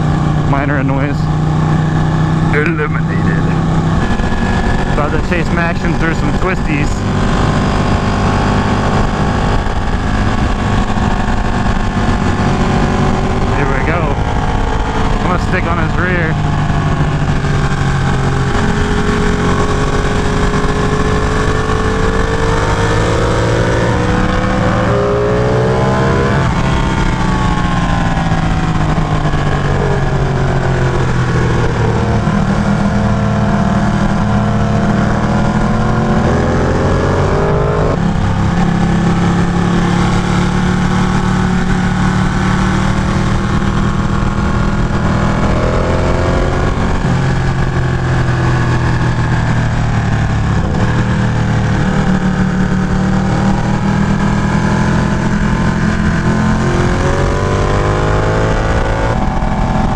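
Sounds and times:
motorcycle engine revving: 0:00.0 - 0:59.9
wind rush: 0:02.9 - 0:15.6.

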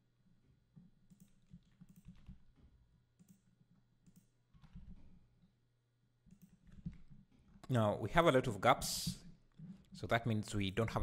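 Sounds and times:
keyboard and mouse clicks: 0:01.0 - 0:05.2, 0:06.2 - 0:07.7.

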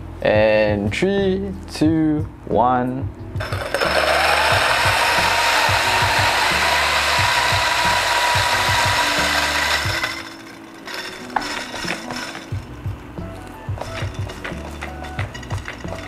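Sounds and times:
coffee grinder crunching beans: 0:03.4 - 0:12.7, 0:13.8 - 0:16.0
grinder motor whine: 0:03.4 - 0:12.7.

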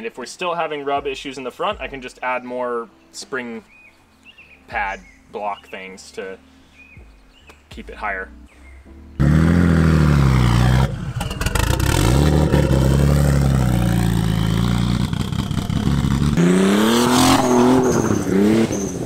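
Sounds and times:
car engine accelerating: 0:09.2 - 0:19.0.

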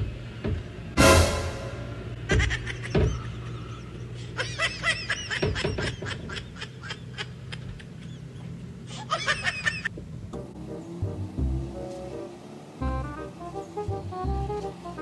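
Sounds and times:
short high staccato notes: 0:01.0 - 0:02.2.

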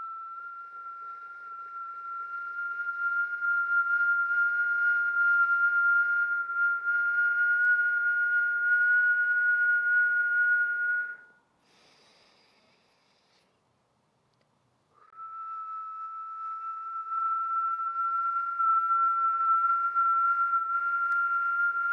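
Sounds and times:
woman whistling a long note: 0:00.0 - 0:12.4, 0:15.0 - 0:21.9
faint breath in: 0:11.6 - 0:13.6.

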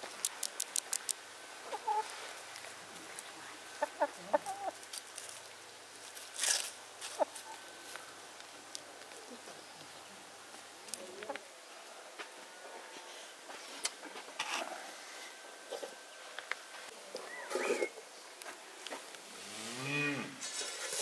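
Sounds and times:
chickens clucking: 0:01.6 - 0:02.2, 0:03.7 - 0:04.8, 0:07.0 - 0:07.7.

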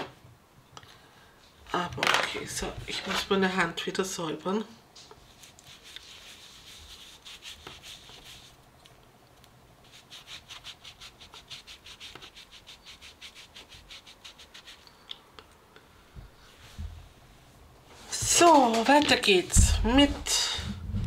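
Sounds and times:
tissue rubbing a hand: 0:05.2 - 0:08.7, 0:09.8 - 0:14.8.

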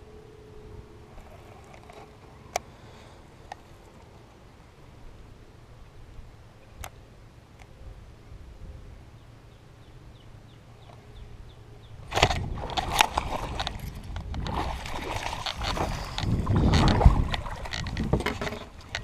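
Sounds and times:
fishing rod rustling and knocking: 0:01.2 - 0:02.7, 0:12.1 - 0:19.0
fish splashing in water: 0:14.4 - 0:18.0.

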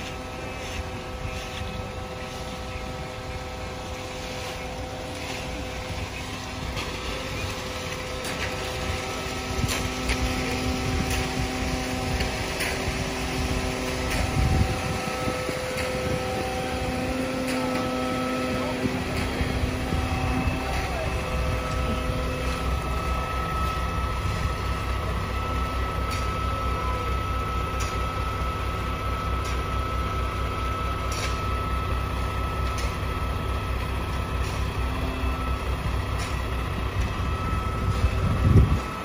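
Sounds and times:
diesel engine rumbling: 0:00.0 - 0:39.0
thin steady whine: 0:00.0 - 0:39.0.

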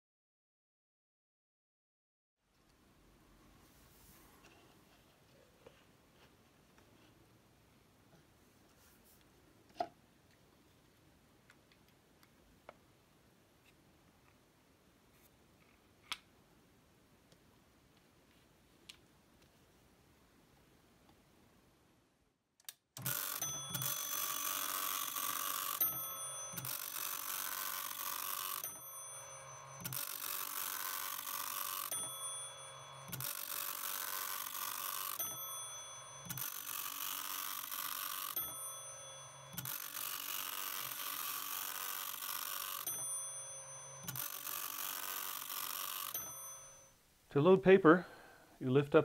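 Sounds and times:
dot-matrix printer buzzing rattle: 0:23.0 - 0:46.8.

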